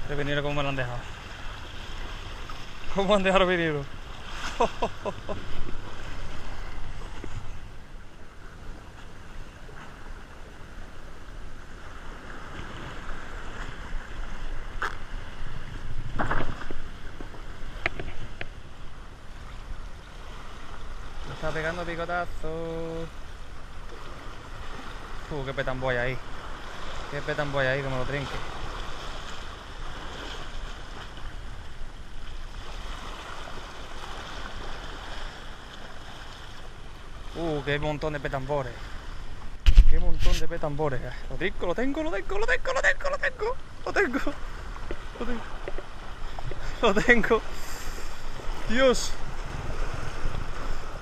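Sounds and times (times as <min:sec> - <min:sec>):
wind buffeting microphone: 0:12.4 - 0:18.8, 0:39.5 - 0:40.7, 0:48.1 - 0:51.0
sea waves against concrete: 0:23.9 - 0:51.0.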